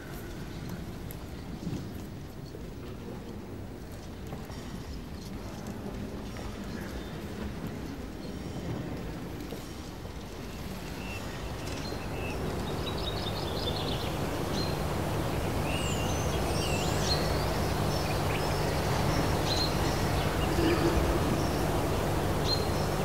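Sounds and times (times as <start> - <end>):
low steady hum: 12.2 - 23.0.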